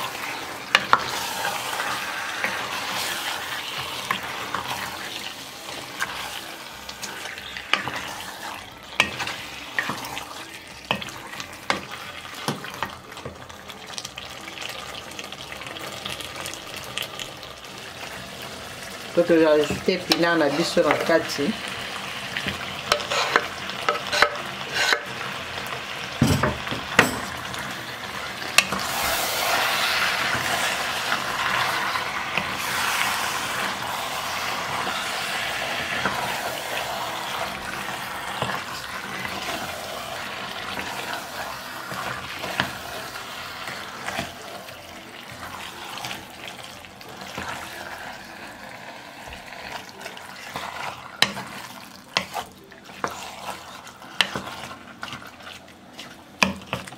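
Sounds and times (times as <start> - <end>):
food sizzling in sauce: 0.0 - 56.9
wooden spatula knocking and scraping: 22.4 - 25.1, 54.2 - 55.2.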